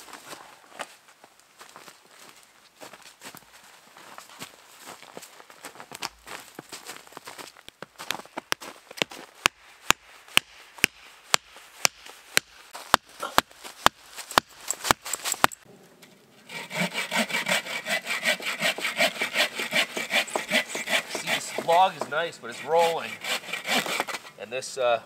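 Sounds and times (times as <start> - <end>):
hand saw cutting wood: 16.5 - 24.4.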